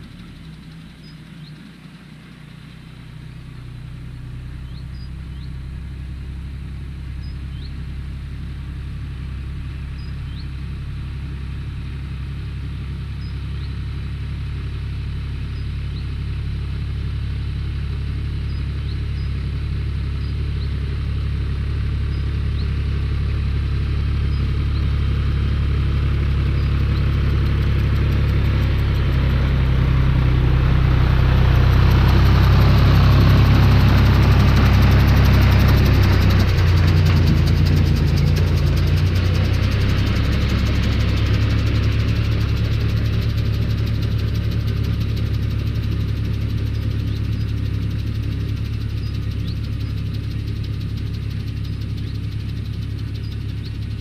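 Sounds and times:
tractor engine running: 0.0 - 54.0
fertiliser spreader rushing noise: 17.1 - 54.0.

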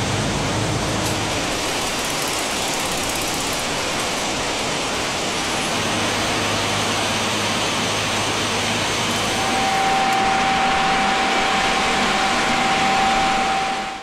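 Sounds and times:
steady whine: 0.0 - 14.0
machine roar: 5.5 - 14.0
low hum: 6.3 - 14.0.

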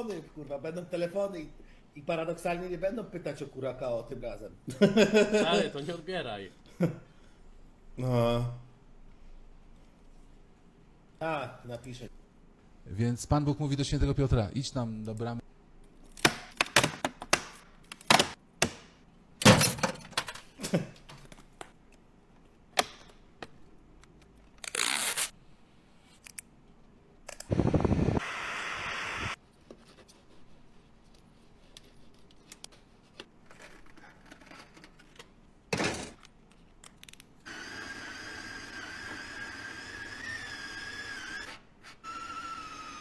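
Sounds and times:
cordless drill whining: 37.5 - 43.0.

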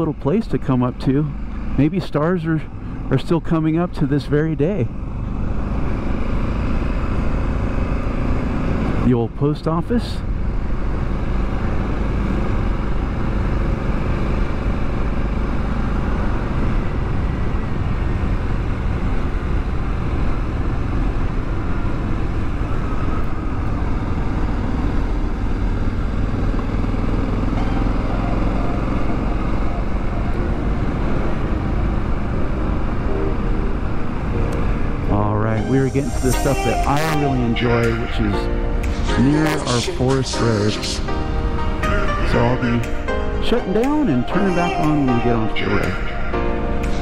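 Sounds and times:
road and wind noise: 0.0 - 47.0
motorcycle engine running: 10.2 - 35.5.

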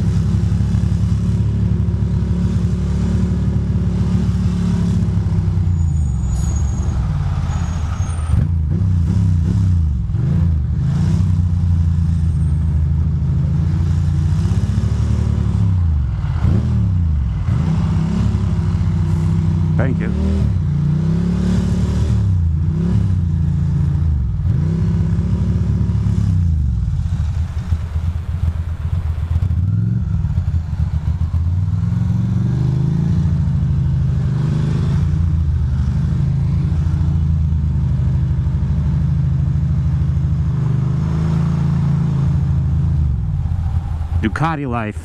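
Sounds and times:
motorcycle engine revving: 0.0 - 44.5.

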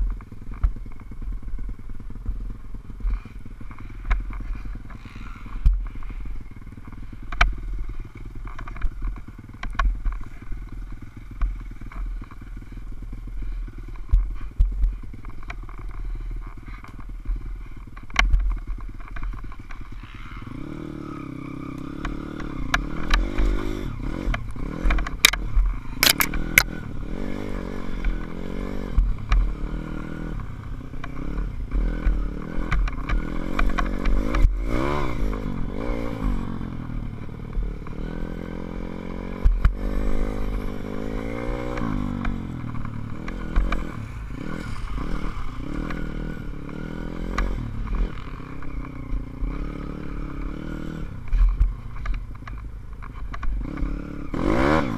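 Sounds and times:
motorbike engine revving: 0.0 - 54.9
sharp clicks and clatters: 6.8 - 12.4, 24.2 - 26.8, 51.2 - 53.9.

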